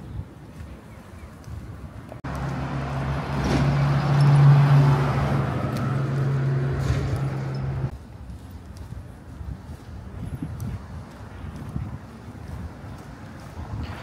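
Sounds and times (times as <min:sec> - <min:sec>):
tyre and road noise: 0:00.0 - 0:14.0
truck engine hum: 0:02.0 - 0:08.2.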